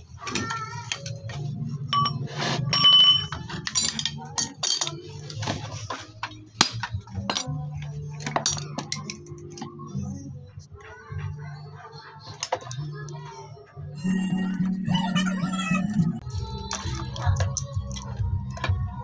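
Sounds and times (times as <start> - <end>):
metal tools clinking on engine parts: 1.9 - 9.4.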